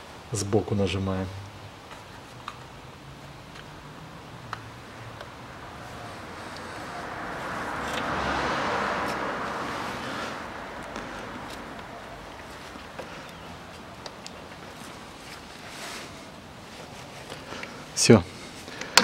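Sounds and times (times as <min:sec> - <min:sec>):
rushing noise: 0:03.9 - 0:12.8.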